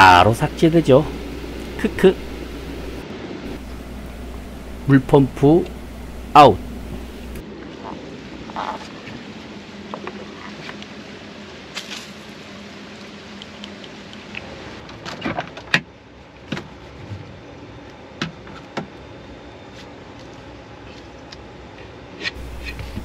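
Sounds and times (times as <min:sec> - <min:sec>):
steady background hiss: 0:00.0 - 0:14.8, 0:22.4 - 0:23.0.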